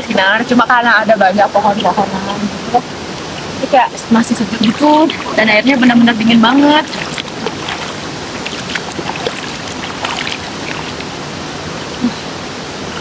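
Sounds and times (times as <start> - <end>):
flowing water rushing: 0.0 - 13.0
hands splashing in water: 6.9 - 11.1.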